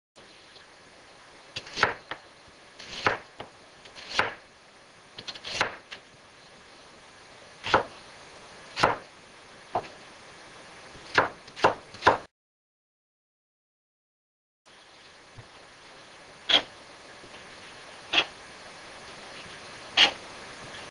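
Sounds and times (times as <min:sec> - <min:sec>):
knife chopping on plastic board: 0:11.1 - 0:12.3.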